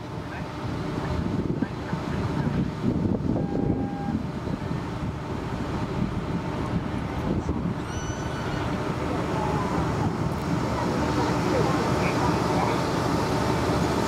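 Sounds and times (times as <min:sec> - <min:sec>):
short high tone: 0:07.8 - 0:08.7.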